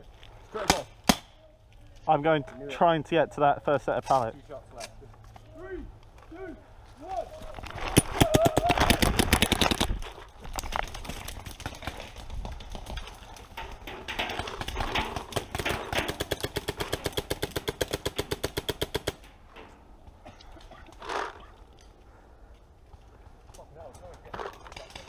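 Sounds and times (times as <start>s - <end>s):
paintball markers firing: 15.0s - 19.3s.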